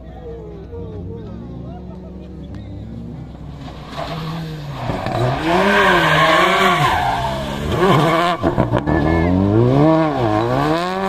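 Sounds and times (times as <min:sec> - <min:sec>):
race car engine revving: 0:00.0 - 0:11.0.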